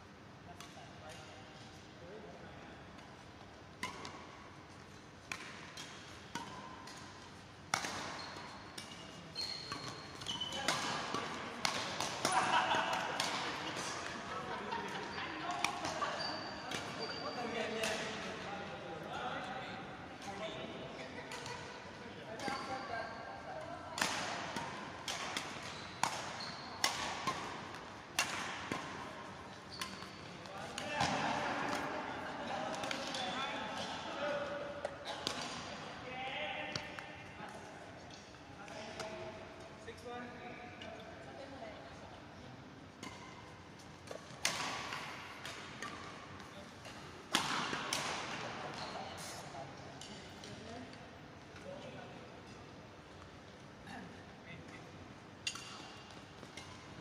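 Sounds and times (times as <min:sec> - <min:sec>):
rackets hitting shuttlecock: 0:03.8 - 0:09.1, 0:09.7 - 0:14.4, 0:17.8 - 0:18.2, 0:24.0 - 0:34.0, 0:44.0 - 0:48.8, 0:55.4 - 0:57.0
shoes squeaking on floor: 0:08.2 - 0:10.7, 0:15.9 - 0:17.6, 0:25.7 - 0:26.8, 0:29.5 - 0:30.3.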